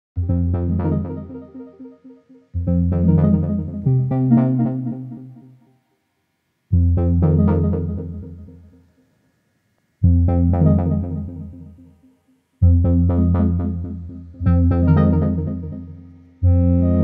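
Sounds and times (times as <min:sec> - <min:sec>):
electric piano phrases: 0:00.2 - 0:02.0, 0:02.6 - 0:05.4, 0:12.6 - 0:17.0.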